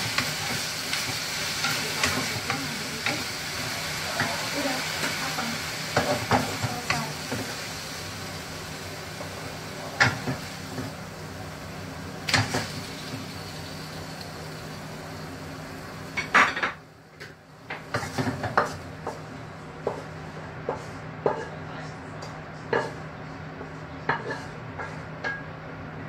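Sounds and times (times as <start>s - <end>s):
hot pan hissing: 0.0s - 16.4s
wooden spatula scraping wok: 23.6s - 25.1s.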